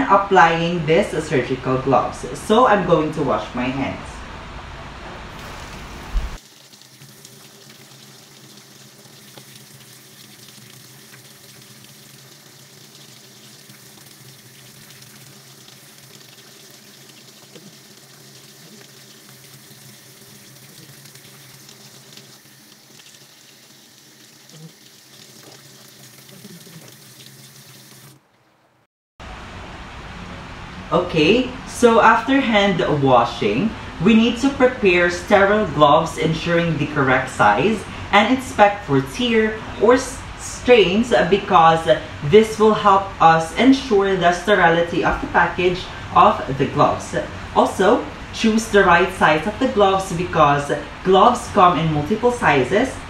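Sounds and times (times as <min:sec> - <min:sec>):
tap water running into sink: 0:05.3 - 0:28.2.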